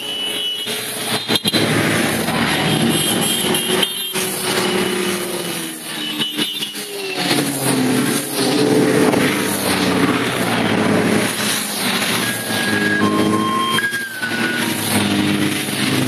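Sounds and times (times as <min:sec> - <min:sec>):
steady high beeps: 0:12.2 - 0:14.8.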